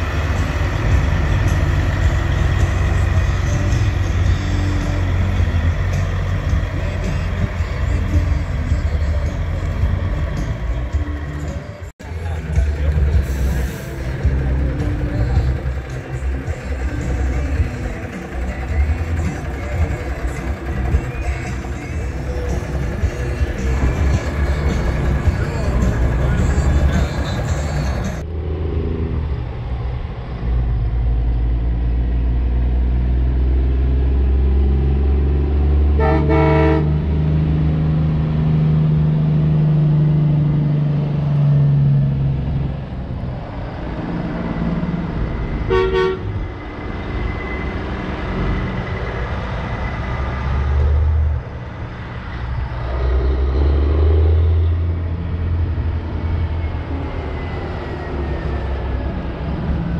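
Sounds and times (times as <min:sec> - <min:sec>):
truck diesel engines running: 0:00.0 - 0:59.9
engine under hard acceleration: 0:12.5 - 0:59.9
truck horn blast: 0:35.9 - 0:37.2, 0:45.6 - 0:46.4.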